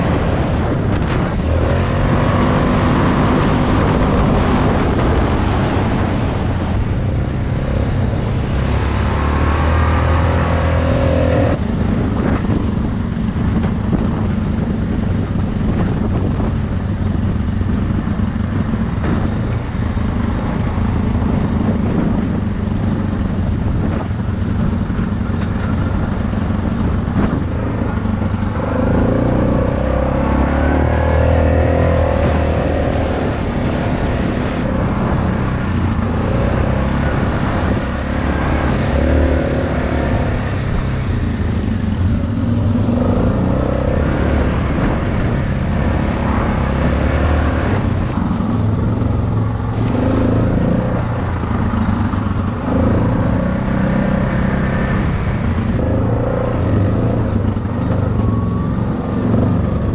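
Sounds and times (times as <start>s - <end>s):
dirt bike engine: 15.6s - 59.9s.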